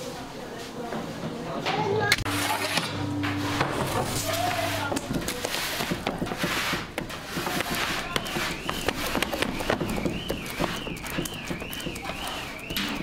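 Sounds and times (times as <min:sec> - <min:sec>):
wavering high tone: 0:02.3 - 0:05.1.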